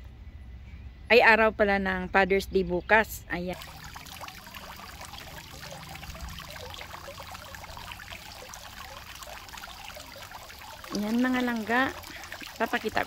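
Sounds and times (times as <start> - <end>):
fountain water splashing: 3.5 - 13.0.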